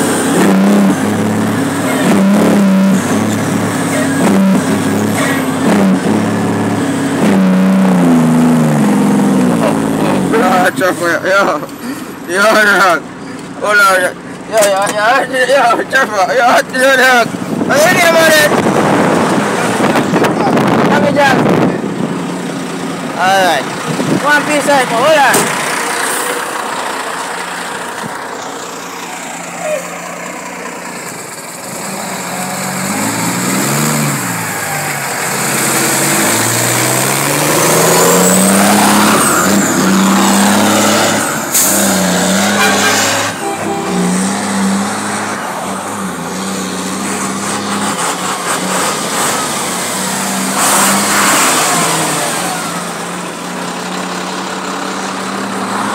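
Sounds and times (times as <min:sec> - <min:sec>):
diesel truck engine accelerating: 0:00.0 - 0:55.9.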